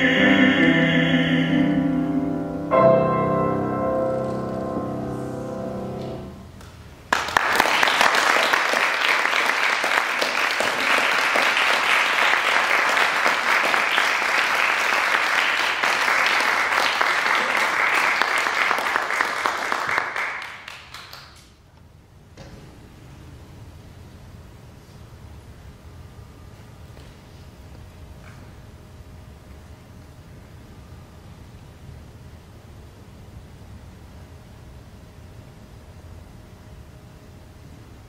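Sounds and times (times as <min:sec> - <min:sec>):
piano chord: 0:00.0 - 0:06.6
audience applause: 0:07.1 - 0:21.4.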